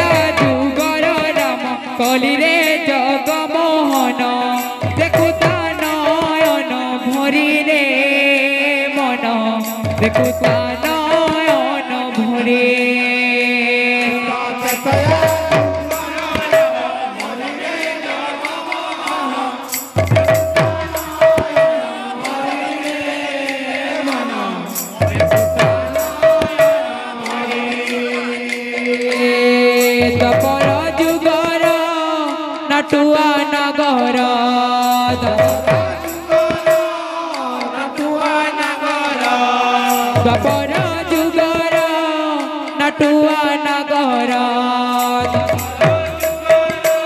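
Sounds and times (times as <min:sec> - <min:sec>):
barrel drums played quickly: 0:04.6 - 0:06.6, 0:09.7 - 0:11.6, 0:14.6 - 0:22.6, 0:24.8 - 0:31.9, 0:34.9 - 0:37.2, 0:45.2 - 0:47.0.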